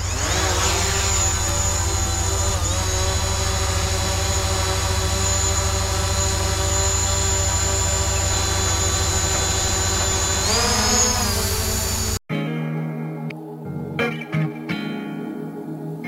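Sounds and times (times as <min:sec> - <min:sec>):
drone propellers whining: 0:00.0 - 0:12.2.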